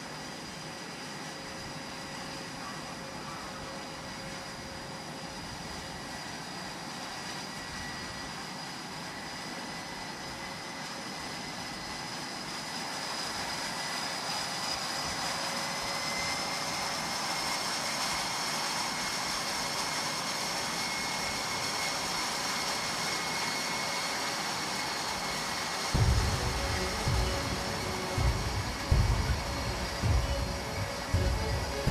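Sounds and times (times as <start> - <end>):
jet engines running: 0.0 - 31.9
high engine whine: 20.2 - 31.9.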